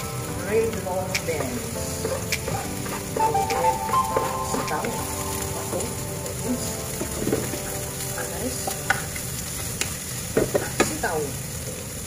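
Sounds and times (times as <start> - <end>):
beans sizzling in frying pan: 0.0 - 12.0
spatula scraping pan: 0.6 - 7.7.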